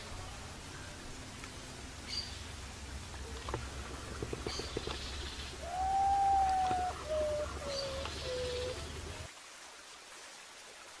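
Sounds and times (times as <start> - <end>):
low background rumble: 0.0 - 9.3
bird whistling mournful song: 5.6 - 9.2.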